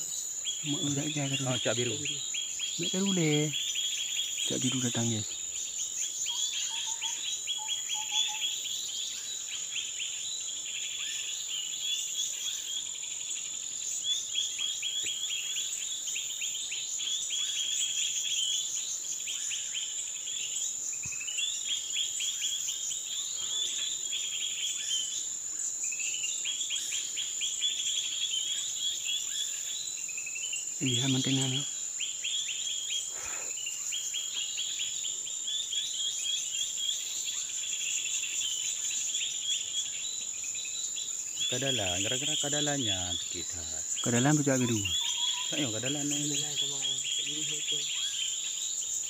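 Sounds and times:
high-pitched insect drone: 0:00.0 - 0:49.0
bird chattering chirps: 0:30.8 - 0:31.7, 0:41.4 - 0:48.4.

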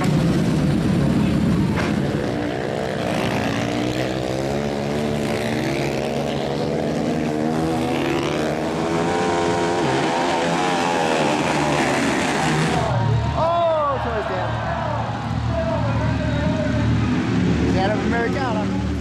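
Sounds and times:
motorcycle engines revving: 0:00.0 - 0:19.0.

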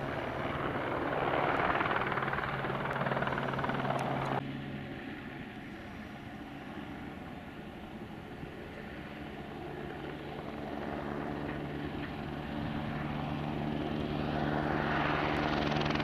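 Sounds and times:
helicopter flying low: 0:00.0 - 0:16.0.

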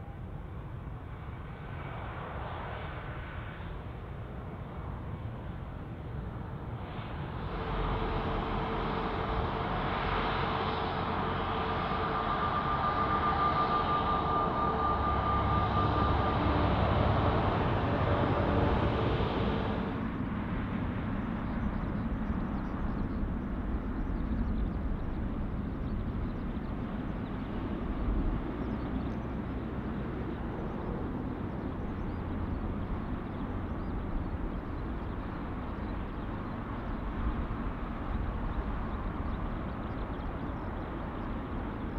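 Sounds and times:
jet engines whining: 0:06.9 - 0:19.9.

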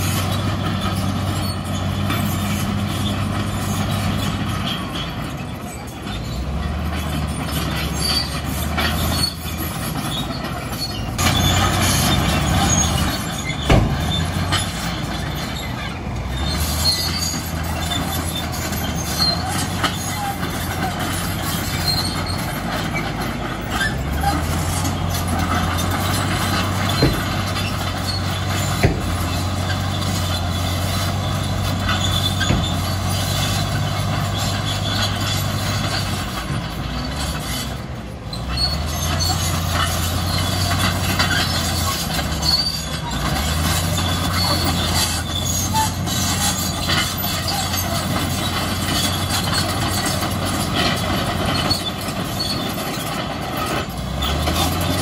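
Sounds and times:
bulldozer diesel engine under load: 0:00.0 - 0:55.0
steel tracks squeaking and clanking: 0:00.0 - 0:55.0
sharp knocks: 0:13.6 - 0:14.2, 0:28.8 - 0:29.3.

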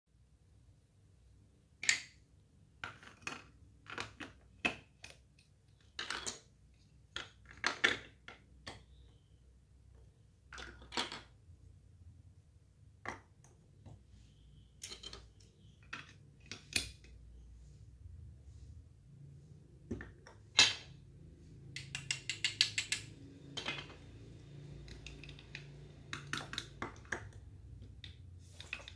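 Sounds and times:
plastic bricks clacking: 0:02.8 - 0:09.0, 0:10.4 - 0:11.4, 0:14.8 - 0:17.2, 0:21.8 - 0:28.9.

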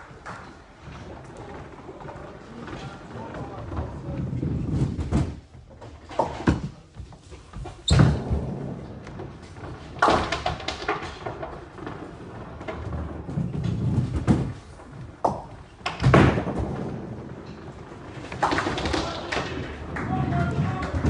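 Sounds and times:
bowling ball rolling rumble: 0:00.1 - 0:06.8, 0:08.0 - 0:21.0
bowling balls hitting lane: 0:07.9 - 0:21.0.

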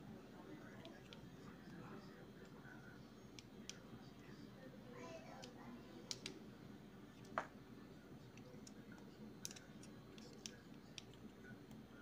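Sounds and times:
plastic toy parts clicking: 0:09.4 - 0:11.1.

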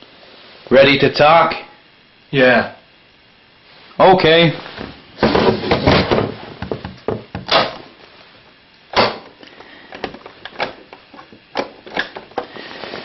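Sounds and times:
objects knocking and scraping: 0:04.8 - 0:07.5.

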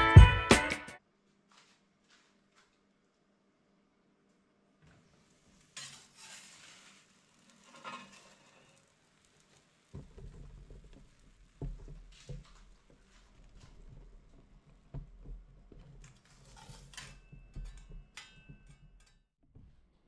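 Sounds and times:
wooden peel scraping oven floor: 0:04.9 - 0:19.1.

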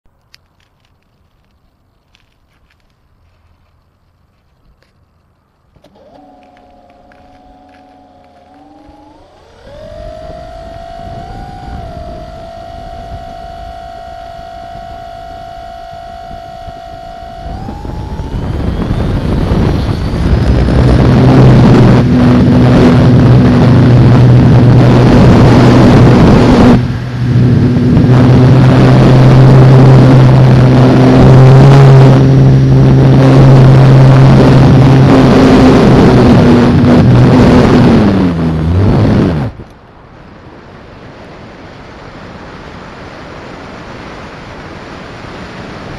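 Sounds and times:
model plane motor and propeller: 0:05.7 - 0:39.8.

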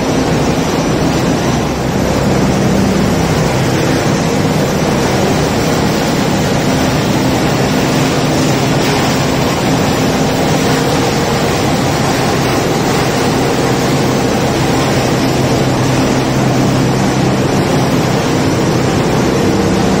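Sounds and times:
textile machinery running: 0:00.0 - 0:20.0.

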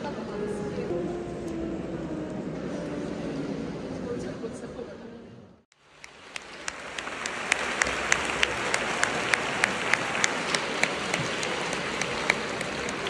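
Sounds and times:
audience applause: 0:06.0 - 0:13.0
sharp individual claps: 0:06.0 - 0:13.0.

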